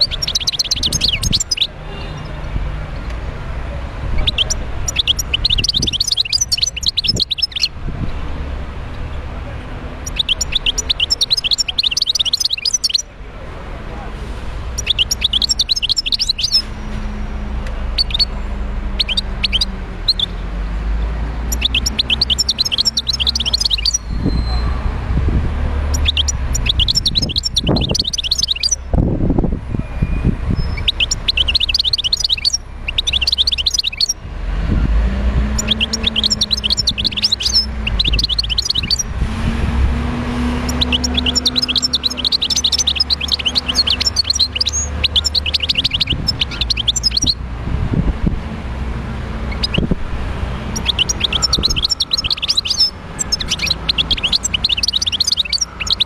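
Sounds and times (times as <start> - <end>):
goldfinch twittering song: 0.0 - 2.4, 4.2 - 8.2, 9.9 - 13.1, 14.7 - 17.0, 17.9 - 20.4, 21.0 - 24.8, 25.8 - 28.8, 30.5 - 34.2, 35.4 - 39.1, 40.2 - 47.4, 49.4 - 49.9, 50.5 - 56.0.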